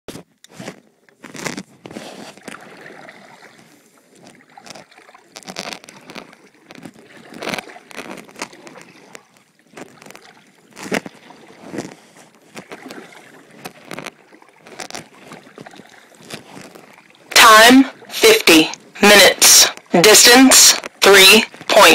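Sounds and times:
paddle splashing in water: 0.5 - 18.1
water sloshing: 0.7 - 21.9.

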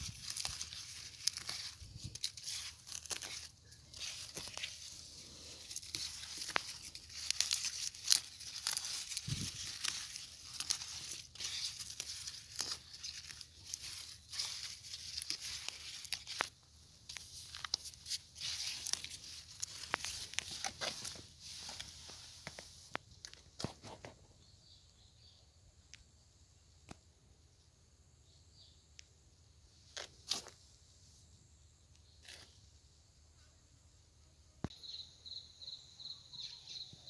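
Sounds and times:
leaves and stems rustling: 0.0 - 24.2.

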